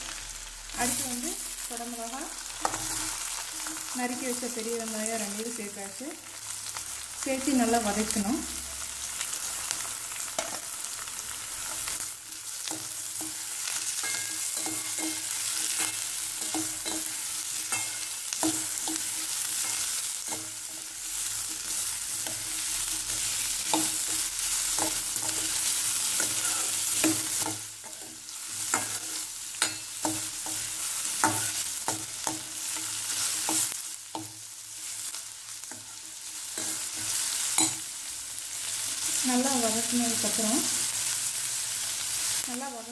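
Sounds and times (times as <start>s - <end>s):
vegetables sizzling in hot oil: 0.0s - 42.9s
metal spoon scraping a pan: 2.5s - 4.0s, 12.6s - 34.3s, 35.6s - 37.9s.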